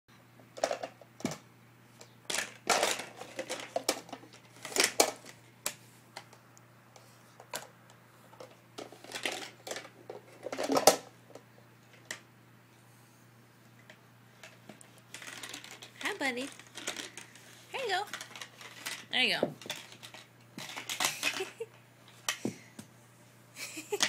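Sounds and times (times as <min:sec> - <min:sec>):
plastic blocks clattering: 0:00.6 - 0:01.3, 0:02.3 - 0:05.4, 0:08.4 - 0:11.1, 0:14.4 - 0:22.3.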